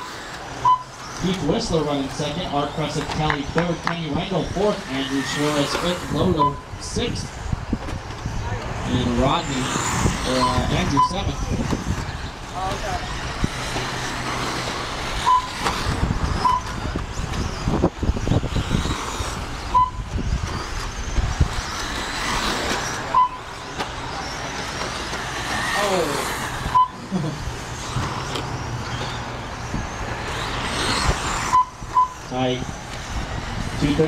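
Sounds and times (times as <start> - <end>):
falling whines: 0.0 - 34.0
rc trucks motor and tyre noise: 0.0 - 34.0
short high beeps: 0.6 - 1.0, 6.4 - 6.7, 10.4 - 11.3, 15.2 - 15.6, 16.4 - 16.8, 19.7 - 20.1, 23.1 - 23.5, 26.7 - 27.0, 31.5 - 32.3.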